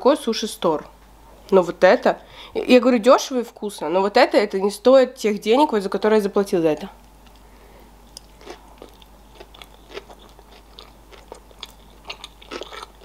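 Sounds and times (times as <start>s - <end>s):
chewing food: 7.2s - 13.0s.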